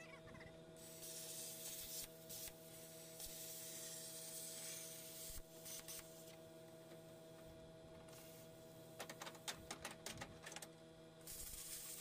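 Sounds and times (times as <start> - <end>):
steady hum: 0.0 - 12.0
plasma cutter hissing: 0.8 - 6.2, 11.2 - 12.0.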